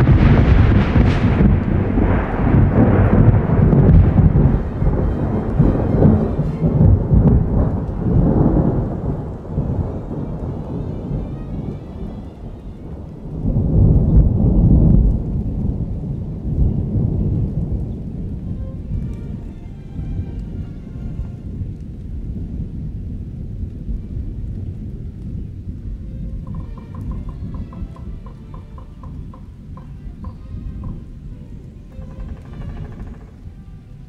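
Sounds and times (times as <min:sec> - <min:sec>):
loud deep rumbling: 0:00.0 - 0:33.9.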